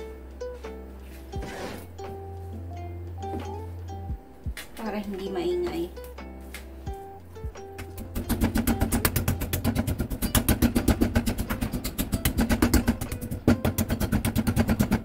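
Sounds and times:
meat mallet pounding: 7.5 - 15.0.

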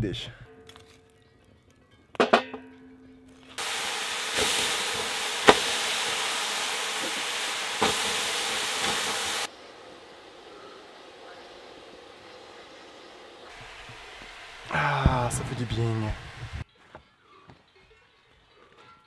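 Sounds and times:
water hissing on hot stones: 3.6 - 16.6.

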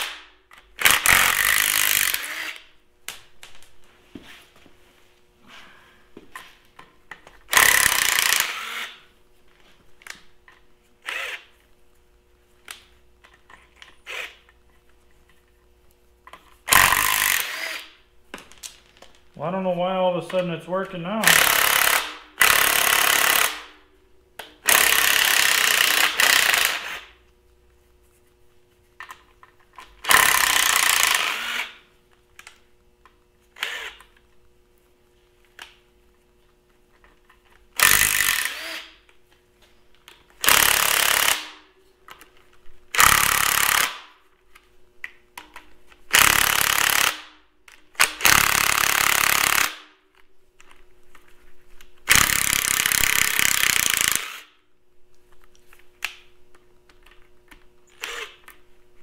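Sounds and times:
impact wrench hammering: 21.2 - 23.8, 52.1 - 54.5.

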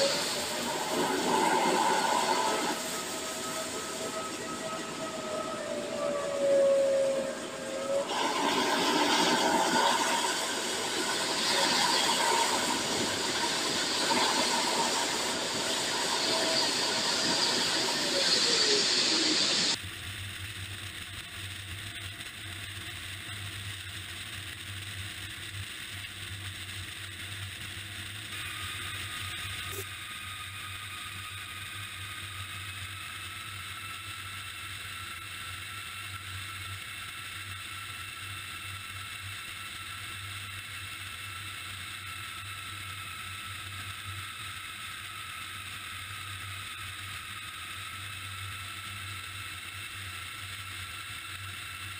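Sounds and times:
hydraulic hiss and whine: 0.0 - 19.8, 27.8 - 51.9
low hum: 0.0 - 38.1.

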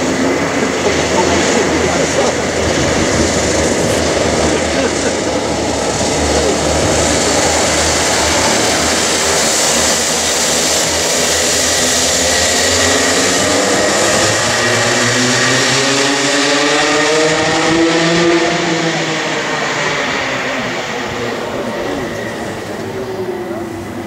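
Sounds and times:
racing kart engines: 0.0 - 24.0.

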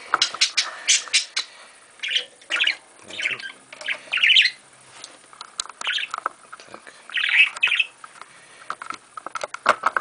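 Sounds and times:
budgerigars chattering: 0.2 - 4.6, 5.8 - 6.1, 7.1 - 8.0.

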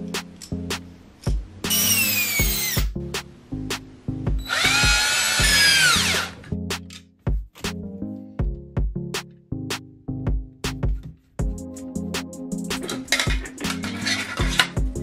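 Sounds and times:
background music with steady beat: 0.0 - 15.0
cordless drill motor whine: 1.7 - 2.8, 4.4 - 6.4.

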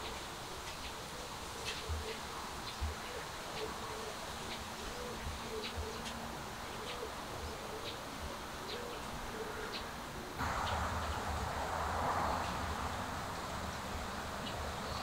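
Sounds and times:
birds chirping: 0.0 - 15.0
rushing noise: 10.4 - 15.0.

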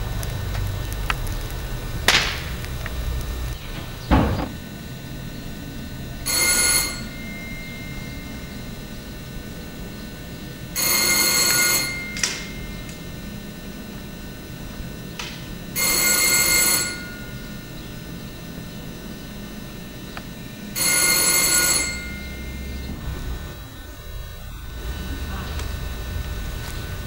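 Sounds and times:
short thump: 3.7 - 4.6
telephone ringing: 6.2 - 9.8, 10.6 - 13.5, 15.7 - 17.8, 20.7 - 23.3.

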